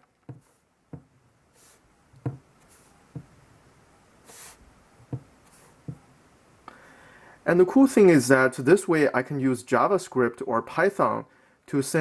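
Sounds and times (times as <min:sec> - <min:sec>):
soft rustle: 0:00.0 - 0:03.5, 0:04.2 - 0:06.1.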